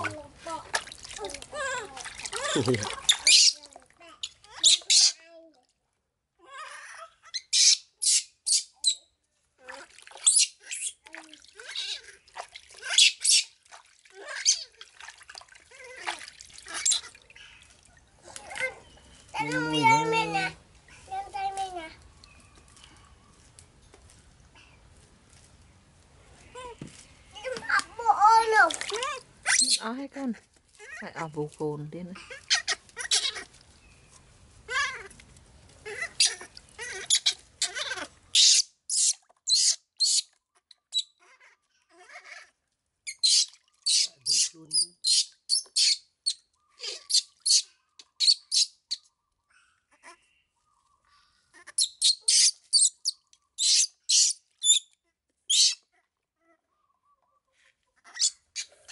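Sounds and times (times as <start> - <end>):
water splashing in a plastic basin: 0.0 - 4.9, 9.5 - 23.0, 27.0 - 38.4, 43.3 - 44.7
baby monkey crying and screeching: 2.9 - 3.6, 4.5 - 5.2, 6.6 - 9.0, 11.6 - 12.1, 14.2 - 14.8, 16.7 - 17.1, 29.4 - 29.8, 32.2 - 33.5, 35.8 - 40.2, 41.0 - 42.5, 43.1 - 48.7, 51.6 - 54.8, 55.5 - 55.8, 58.0 - 58.7.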